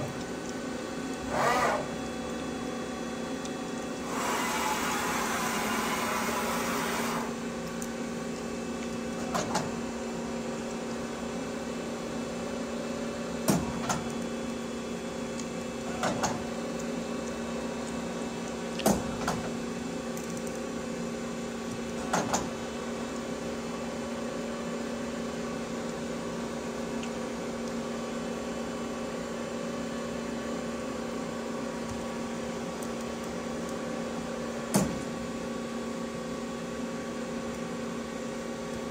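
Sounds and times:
hiss: 4.1 - 7.3.

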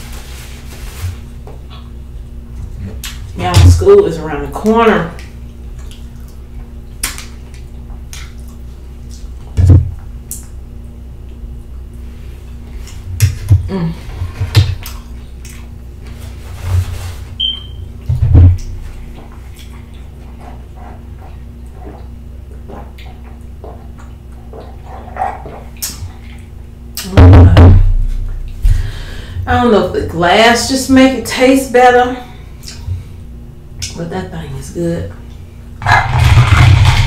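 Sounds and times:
chewing: 5.7 - 9.3, 18.6 - 26.6
loud low thumps: 27.2 - 28.9.

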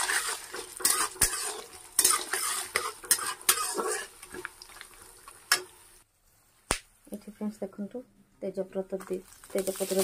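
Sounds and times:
metal spatula scraping pan: 0.0 - 4.4
frying oil sizzling: 0.0 - 6.1, 9.0 - 10.0.

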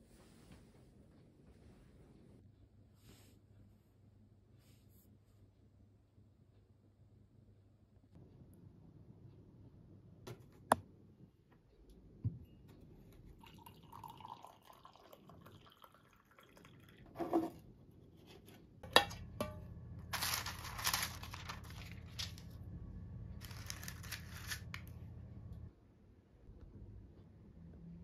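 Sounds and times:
tea pouring into a mug: 13.4 - 17.1
low steady hum: 17.0 - 28.0
rustling and crinkling: 20.0 - 22.6, 23.4 - 25.0.

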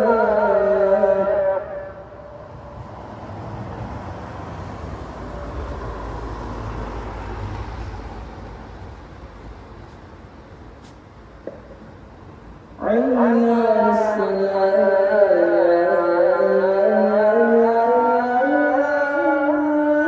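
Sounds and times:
sung call to prayer: 0.0 - 2.8, 12.8 - 20.0
vehicle passing: 0.0 - 10.8.

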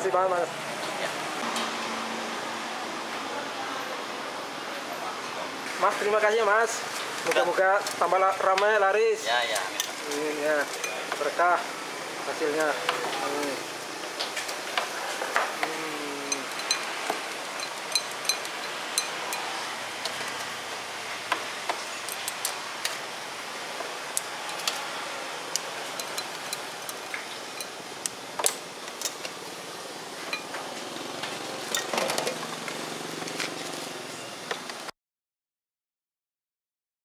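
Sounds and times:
road traffic hum: 0.0 - 34.9
utensils clinking on bowls and lids: 10.7 - 11.2, 16.1 - 20.5, 25.8 - 27.8.

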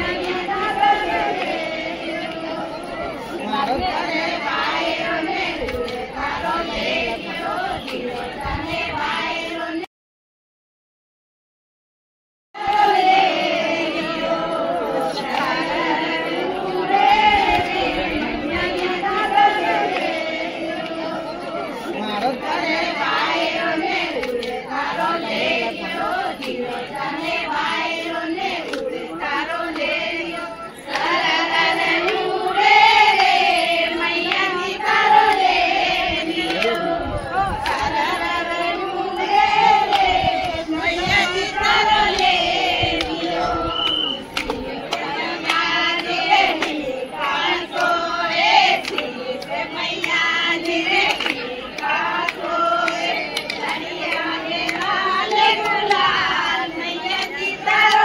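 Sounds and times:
hand claps: 0.0 - 9.6, 14.9 - 58.0
women singing together: 0.0 - 9.9, 12.6 - 58.0
sharp hand claps: 28.6 - 28.9, 29.7 - 31.2, 37.6 - 38.0, 42.1 - 58.0.

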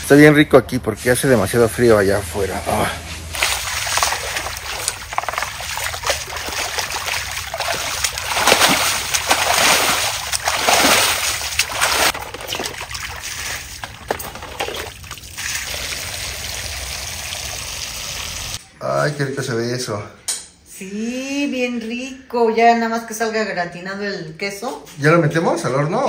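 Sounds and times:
broom sweeping water: 2.0 - 15.8
scrubbing wet tiles: 3.3 - 15.7.

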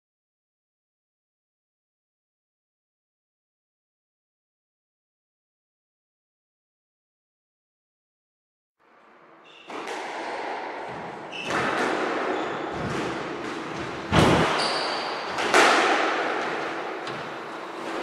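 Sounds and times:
squash ball cracking off rackets: 9.7 - 18.0
shoes squeaking on wooden floor: 10.9 - 15.4.

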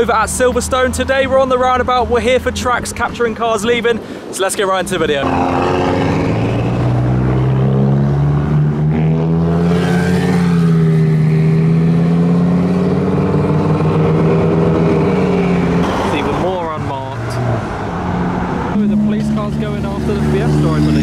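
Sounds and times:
deep car exhaust drone: 5.2 - 21.0.

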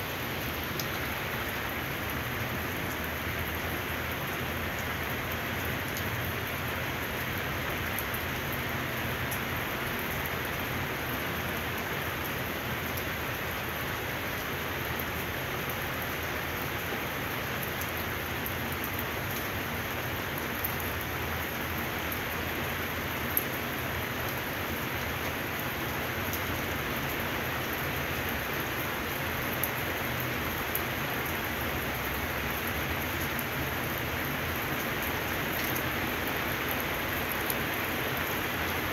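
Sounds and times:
sharp raindrops: 0.0 - 38.9
steady rain pattering: 0.0 - 38.9.

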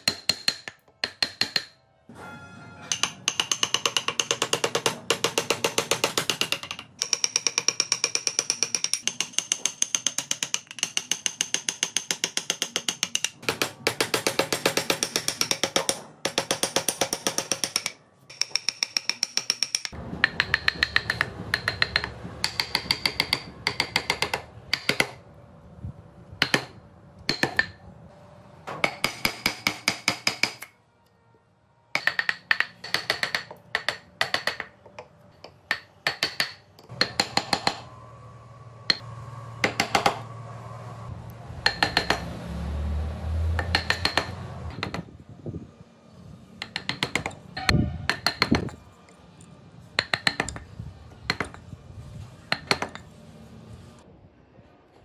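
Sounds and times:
hammer tapping chisel into wood: 0.0 - 1.8, 2.9 - 25.2, 32.0 - 37.8, 41.6 - 42.3, 43.6 - 45.0, 46.6 - 47.4, 50.0 - 50.6.

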